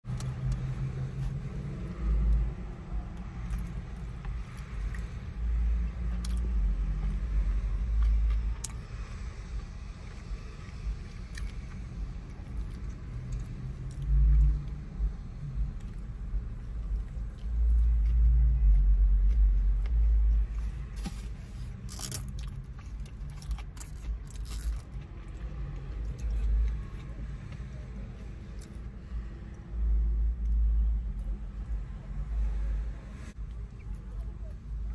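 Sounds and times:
chewing and biting food: 5.9s - 28.9s.

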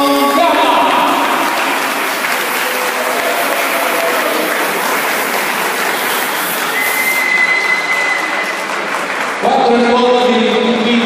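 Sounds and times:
audience applauding: 0.0s - 10.2s
thin high tone: 3.4s - 8.6s.

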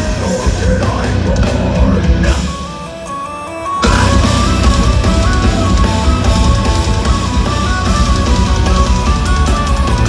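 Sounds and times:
electric guitars: 0.0s - 10.0s
folk metal band playing live: 0.0s - 10.0s
pounding drums: 3.8s - 10.0s.

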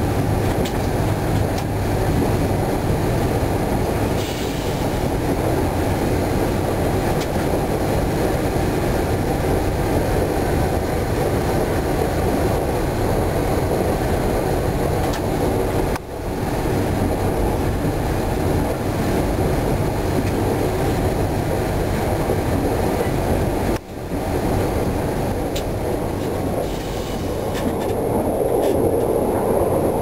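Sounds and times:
train wheels rumbling on track: 0.0s - 30.0s.

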